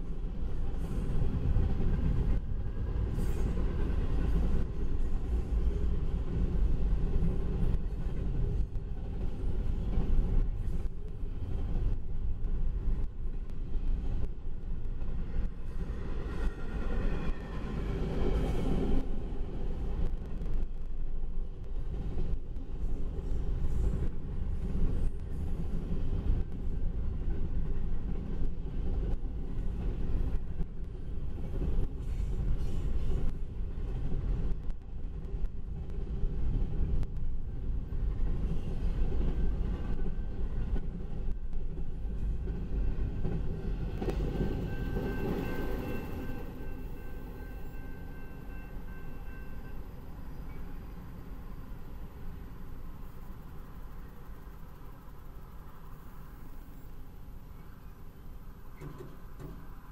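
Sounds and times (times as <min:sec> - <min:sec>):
freight train rolling past: 0:00.0 - 0:59.9
high-pitched ringing tone: 0:44.4 - 0:52.3
steel wheels clattering on rail: 0:57.8 - 0:59.9.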